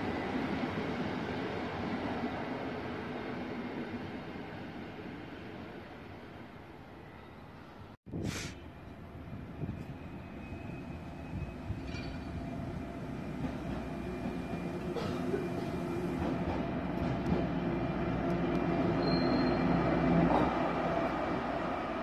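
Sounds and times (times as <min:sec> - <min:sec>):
diesel locomotive engine drone: 0:08.6 - 0:22.0.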